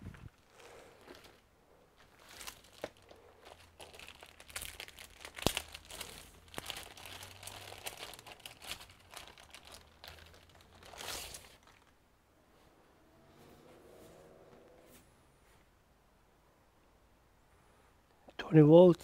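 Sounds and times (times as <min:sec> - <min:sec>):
plastic bag crinkling: 0:00.1 - 0:12.0.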